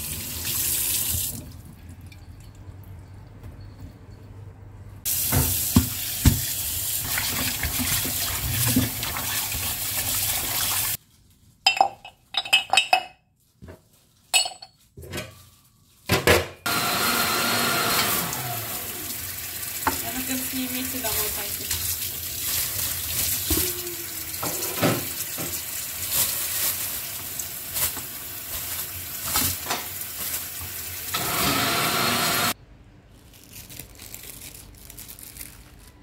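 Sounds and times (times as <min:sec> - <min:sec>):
tap water running into sink: 0:00.0 - 0:01.6, 0:05.1 - 0:11.0.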